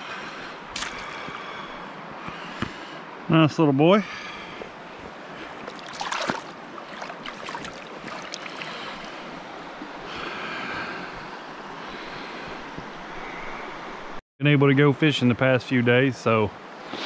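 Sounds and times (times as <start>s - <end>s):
creek water rushing: 0.0s - 2.4s, 4.2s - 12.6s.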